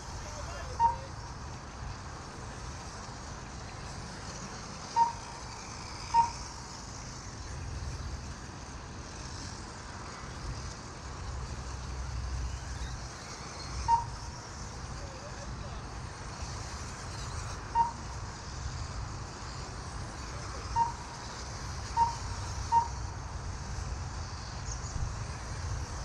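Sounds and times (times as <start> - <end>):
short electronic beeps: 0.4 - 1.2
wind rumble on microphone: 23.3 - 26.0.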